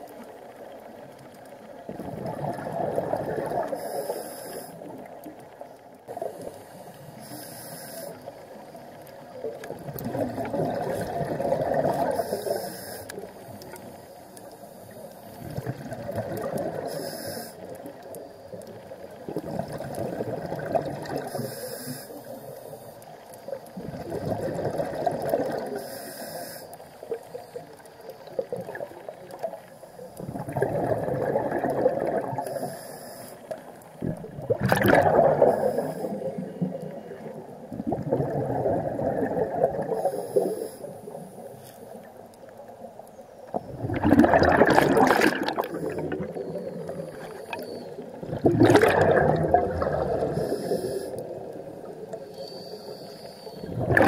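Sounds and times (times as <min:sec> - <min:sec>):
exhaled bubbles bubbling: 0:01.8 - 0:04.0, 0:09.4 - 0:12.6, 0:15.3 - 0:17.0, 0:17.7 - 0:21.5, 0:23.4 - 0:25.8, 0:27.1 - 0:32.7, 0:33.5 - 0:40.5, 0:43.5 - 0:52.4, 0:53.5 - 0:54.0
regulator inhale hiss: 0:03.7 - 0:05.0, 0:06.1 - 0:08.6, 0:12.0 - 0:15.5, 0:16.8 - 0:18.6, 0:21.2 - 0:23.5, 0:25.6 - 0:27.8, 0:32.4 - 0:33.8, 0:35.4 - 0:37.2, 0:39.8 - 0:42.1, 0:45.5 - 0:48.1, 0:50.2 - 0:53.8.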